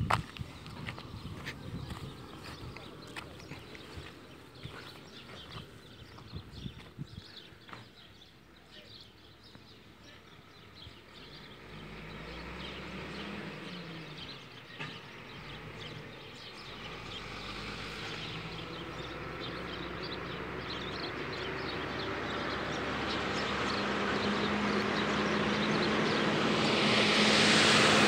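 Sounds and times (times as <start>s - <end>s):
small birds chirping: 0.1s - 28.0s
engine droning: 11.1s - 28.0s.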